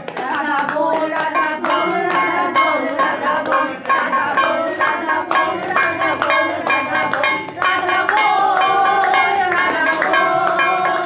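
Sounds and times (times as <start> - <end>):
person singing: 0.0 - 11.0
beat of bell-like notes: 1.1 - 11.0.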